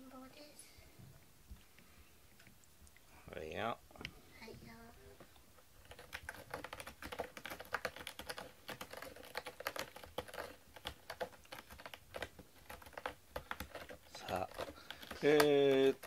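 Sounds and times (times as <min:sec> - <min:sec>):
cat scratching cardboard: 0:05.6 - 0:16.0.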